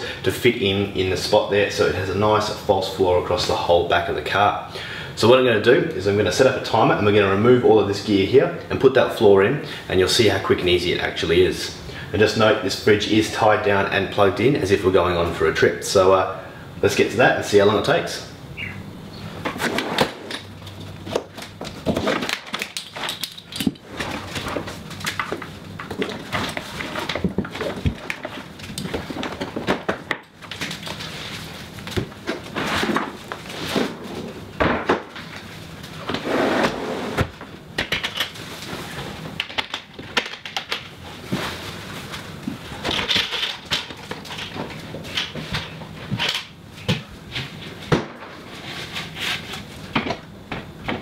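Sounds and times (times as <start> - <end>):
fridge scraping as slid out: 36.1 - 37.3.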